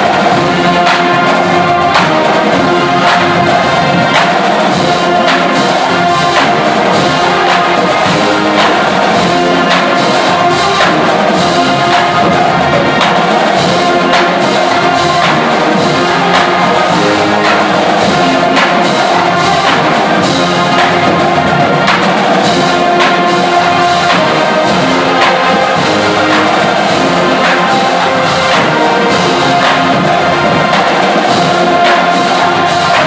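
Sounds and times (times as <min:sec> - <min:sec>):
brass playing: 0:00.0 - 0:33.0
drumline with cymbals: 0:00.0 - 0:33.0.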